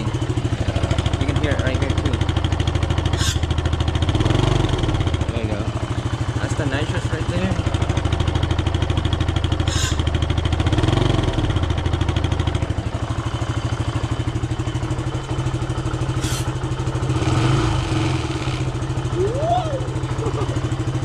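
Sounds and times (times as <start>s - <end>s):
motorcycle engine idling: 0.0s - 21.0s
short gas hisses: 16.2s - 16.5s.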